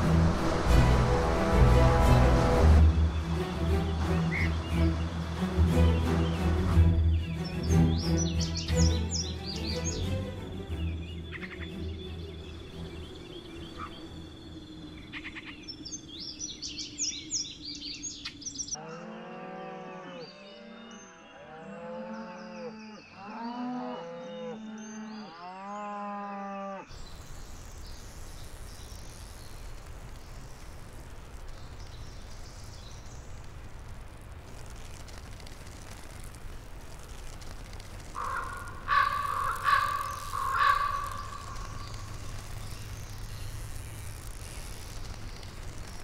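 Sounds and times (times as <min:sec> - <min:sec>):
music: 0:00.0 - 0:14.6
steady rushing noise: 0:00.0 - 0:18.2, 0:26.9 - 0:46.0
birds chirping: 0:02.1 - 0:26.0, 0:26.9 - 0:46.0.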